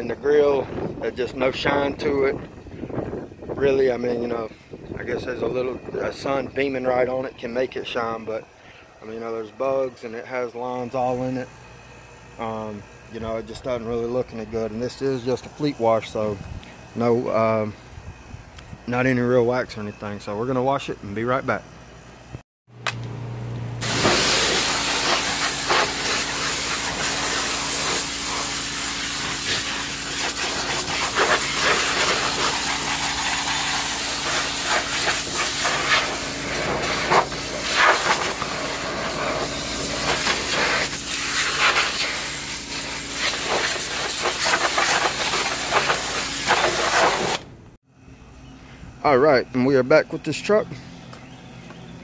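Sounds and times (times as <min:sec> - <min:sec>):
steady low hum: 0:00.0 - 0:46.9, 0:47.5 - 0:52.0
pressure washer spray hissing: 0:23.8 - 0:47.5.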